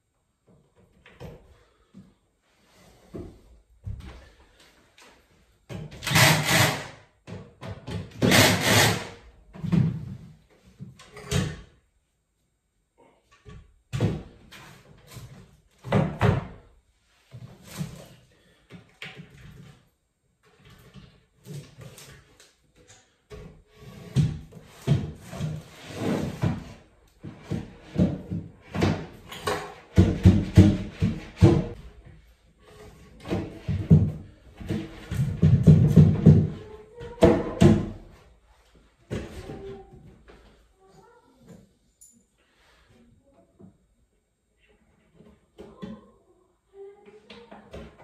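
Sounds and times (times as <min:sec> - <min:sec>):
panels knocking and scraping: 0:13.4 - 0:40.6.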